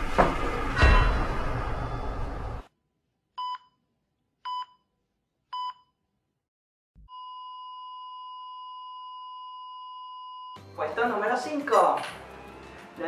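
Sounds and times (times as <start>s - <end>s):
heart monitor beeps: 3.4s - 3.8s, 4.5s - 4.8s, 5.6s - 5.9s, 7.1s - 10.6s.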